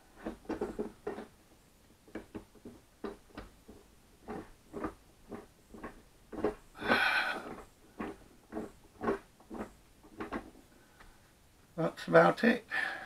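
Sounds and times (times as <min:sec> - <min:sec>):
wooden gear teeth clunking: 0:00.2 - 0:01.4, 0:02.0 - 0:11.1.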